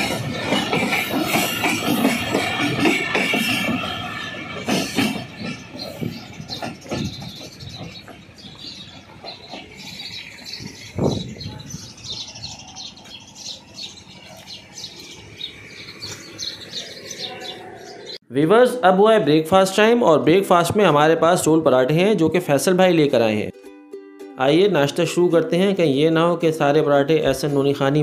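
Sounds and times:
train rumble: 0:00.0 - 0:18.2
birds chirping: 0:00.0 - 0:18.4.

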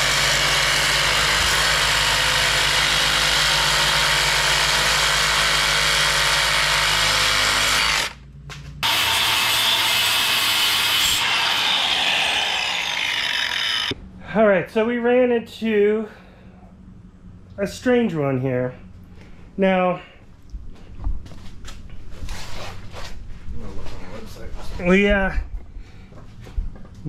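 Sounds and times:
reciprocating saw cutting metal: 0:00.0 - 0:08.2, 0:08.8 - 0:14.0.

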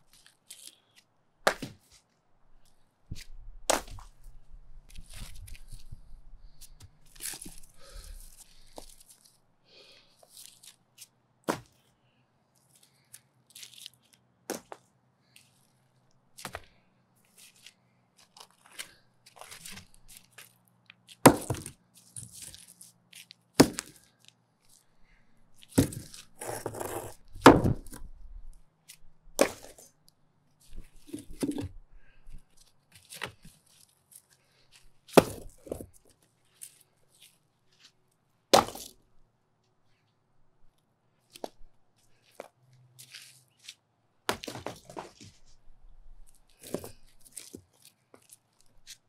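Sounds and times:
concrete cracking under strikes: 0:03.7 - 0:04.1, 0:21.1 - 0:22.3, 0:23.6 - 0:24.0, 0:29.4 - 0:29.9, 0:35.1 - 0:35.8, 0:38.5 - 0:39.0.

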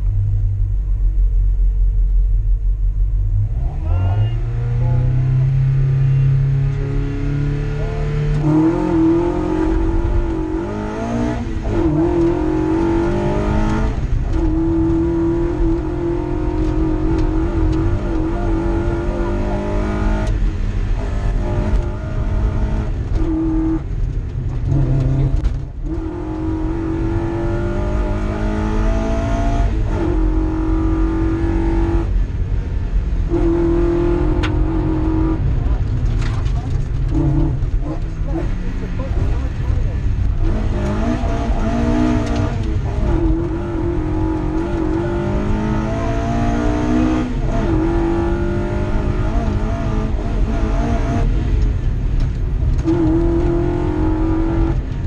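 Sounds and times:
car engine accelerating hard: 0:03.2 - 0:55.0.

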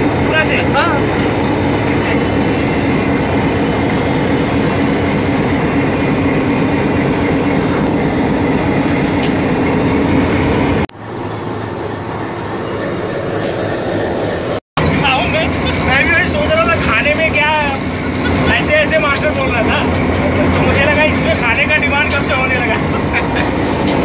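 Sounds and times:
diesel locomotive engine drone: 0:00.0 - 0:24.0.

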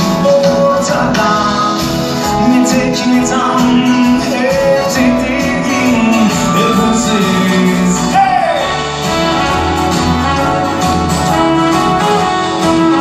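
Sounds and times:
man singing: 0:00.0 - 0:08.9
acoustic guitars and band: 0:00.0 - 0:13.0.

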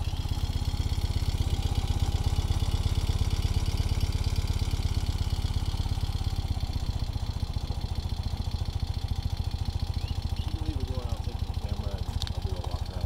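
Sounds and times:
motorcycle engine idling: 0:00.0 - 0:13.0.

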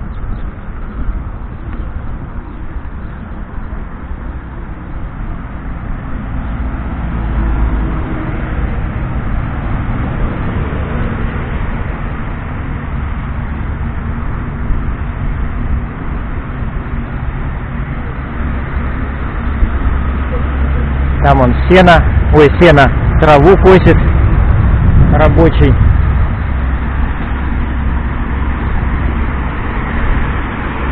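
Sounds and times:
bicycle tyres on pavement: 0:00.0 - 0:30.9
car traffic passing: 0:00.0 - 0:30.9
wind rumble on microphone: 0:00.0 - 0:30.9.

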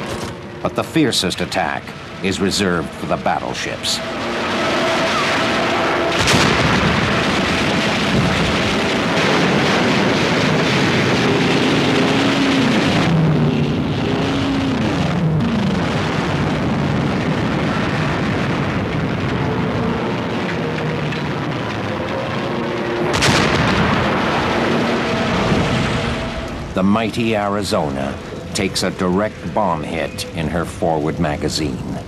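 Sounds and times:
explosions: 0:00.0 - 0:32.0
falling whines: 0:00.0 - 0:32.0
gunfire: 0:04.0 - 0:26.4.

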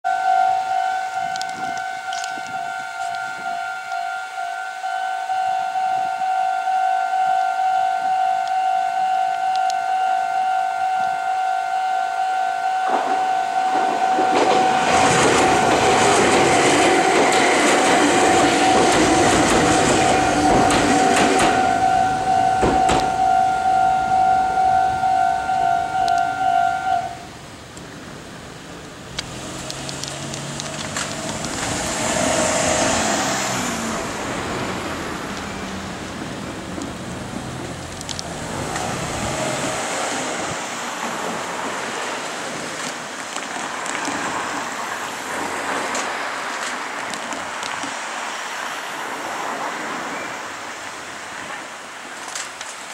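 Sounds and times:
level-crossing warning bell: 0:00.1 - 0:27.2
electric train passing: 0:00.1 - 0:52.4
train wheel clicks: 0:12.9 - 0:21.8, 0:29.1 - 0:33.0, 0:36.7 - 0:39.0.

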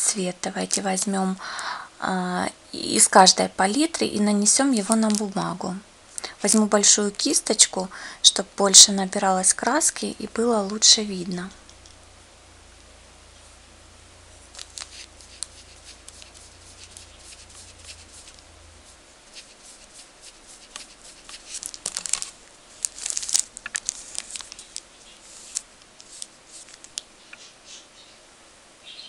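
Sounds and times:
brush stroking across paper: 0:14.3 - 0:27.9
paintbrush scrubbing in paint pan: 0:14.9 - 0:21.6.

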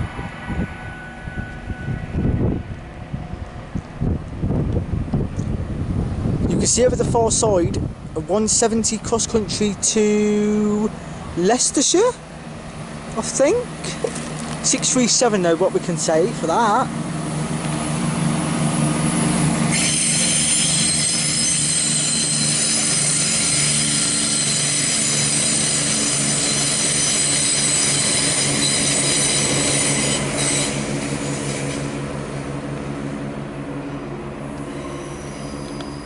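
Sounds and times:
high-pitched wheel squeal: 0:00.0 - 0:02.6, 0:19.1 - 0:32.0, 0:34.6 - 0:36.0
diesel train engines running: 0:00.0 - 0:36.0.

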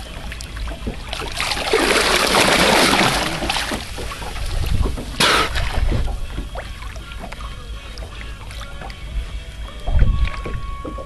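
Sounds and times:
dolphin splashing in water: 0:00.8 - 0:06.1.

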